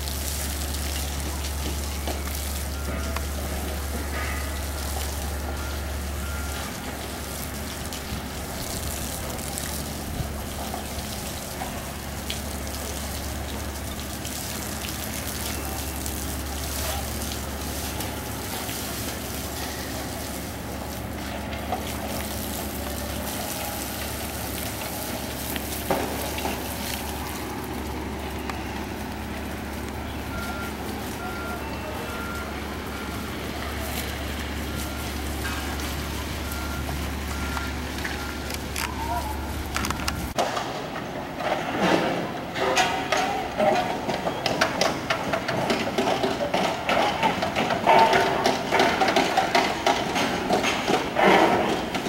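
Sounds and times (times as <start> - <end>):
rumble of vehicles: 0.0 - 52.0
reversing alarm beeping: 0.1 - 10.0, 15.0 - 40.4.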